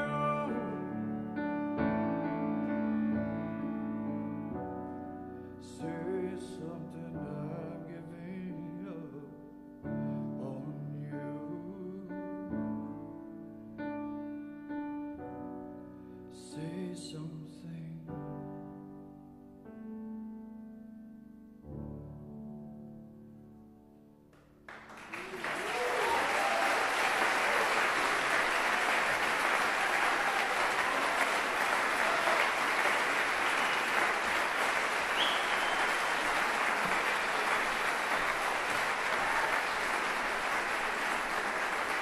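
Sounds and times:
audience applauding: 0:00.0 - 0:00.9, 0:24.7 - 0:42.0
grand piano chords: 0:00.0 - 0:25.3, 0:27.9 - 0:42.0.

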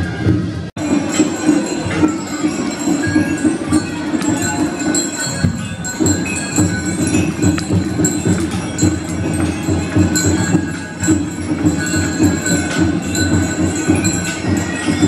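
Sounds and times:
music playing: 0:00.0 - 0:15.0
bells jingling: 0:00.8 - 0:15.0.

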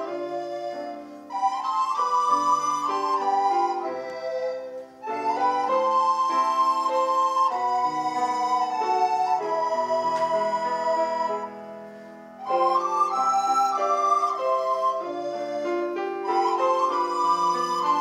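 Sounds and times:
recorder ensemble playing chords: 0:00.0 - 0:18.0.

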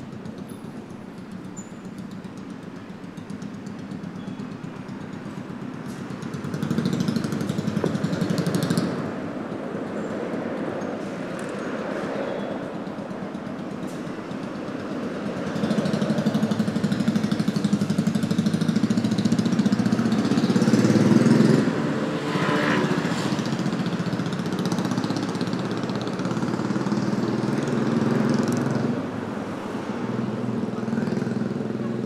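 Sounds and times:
vehicle engine running: 0:13.3 - 0:32.0.

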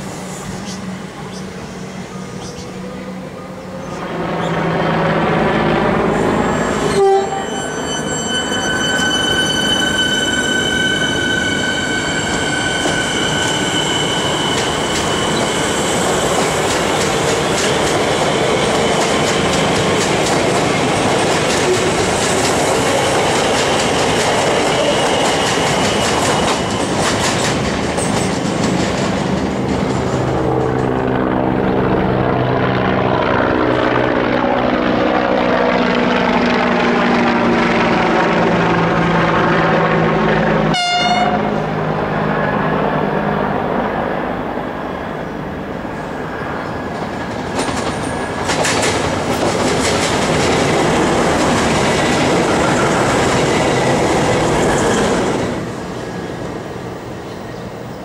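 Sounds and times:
train wheel squeal: 0:00.0 - 0:04.6, 0:06.2 - 0:20.2, 0:21.4 - 0:28.4, 0:51.4 - 0:55.5
low train hum: 0:00.0 - 0:58.0
train wheels clickety-clack: 0:14.3 - 0:31.1, 0:46.8 - 0:55.6.

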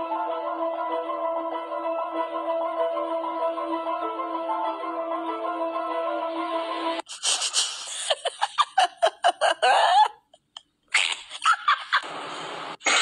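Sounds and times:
person laughing hard: 0:07.1 - 0:12.0.

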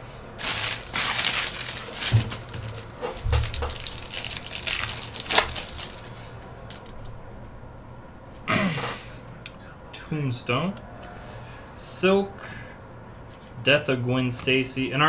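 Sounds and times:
foil wrapper crinkling and tearing: 0:00.4 - 0:07.1.

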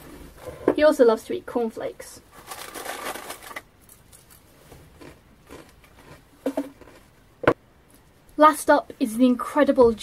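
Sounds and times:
cardboard box and paper bag rustling: 0:02.3 - 0:03.6.

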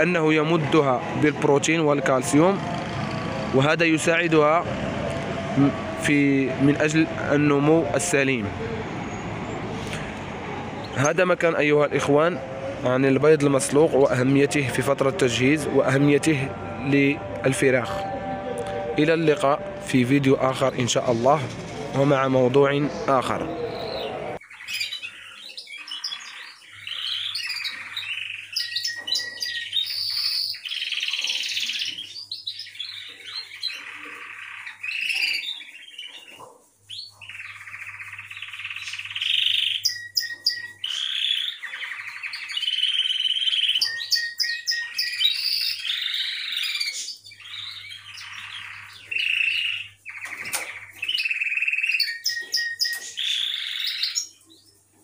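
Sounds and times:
canary singing trilled song: 0:22.9 - 0:54.9.

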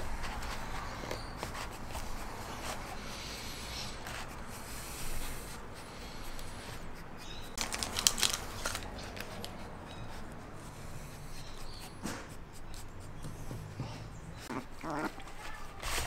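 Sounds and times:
puppy claws scraping on plastic: 0:00.0 - 0:03.1, 0:14.7 - 0:16.0.

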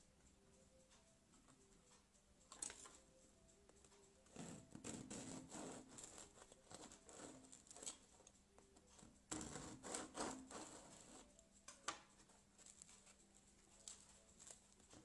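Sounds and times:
knife sawing through bread: 0:04.4 - 0:07.9, 0:09.3 - 0:11.2.

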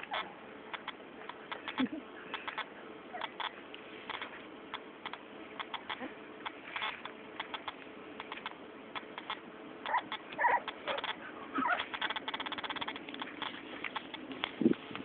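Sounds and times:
puppies squeaking: 0:00.0 - 0:04.3, 0:06.8 - 0:14.3
small clicks: 0:00.0 - 0:15.0.

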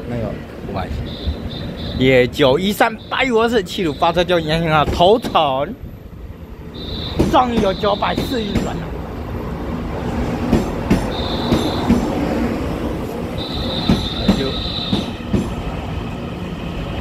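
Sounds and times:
train wheels rumbling on rail: 0:00.0 - 0:17.0
high-pitched wheel squeal: 0:00.9 - 0:02.1, 0:02.8 - 0:05.5, 0:06.7 - 0:08.8, 0:11.0 - 0:12.1, 0:13.3 - 0:15.2
knocks over rail joints: 0:07.2 - 0:08.8.

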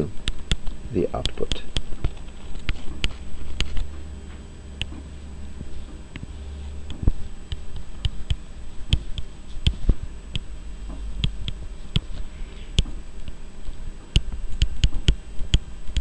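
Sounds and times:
low steady hum: 0:00.0 - 0:16.0
stylus tapping on tablet: 0:06.9 - 0:10.5.

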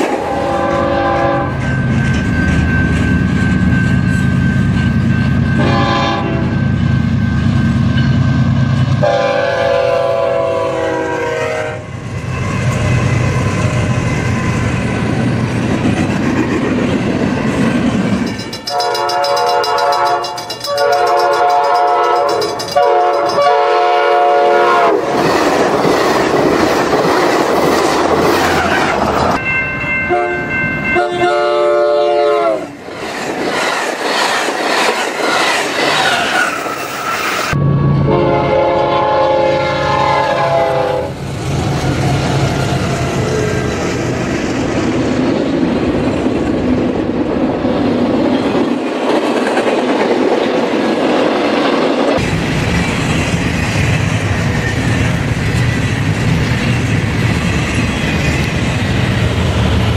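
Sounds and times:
train wheels rushing past: 0:00.0 - 0:59.9
locomotive horn chord: 0:00.2 - 0:01.6, 0:05.6 - 0:06.6, 0:09.0 - 0:11.9, 0:18.7 - 0:25.0, 0:30.1 - 0:32.7, 0:37.6 - 0:41.2
multi-note train horn: 0:00.2 - 0:01.6, 0:05.6 - 0:06.7, 0:09.0 - 0:11.9, 0:18.7 - 0:25.0, 0:30.1 - 0:32.8, 0:37.6 - 0:41.2.

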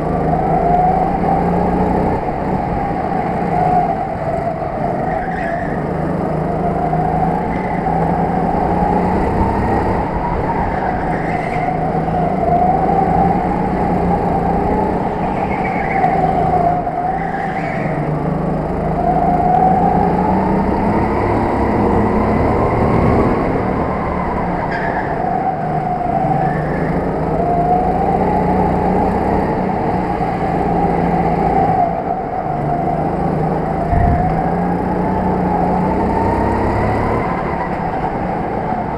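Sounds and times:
go-kart motor running: 0:00.0 - 0:38.9
steady low rumble: 0:33.8 - 0:35.0.

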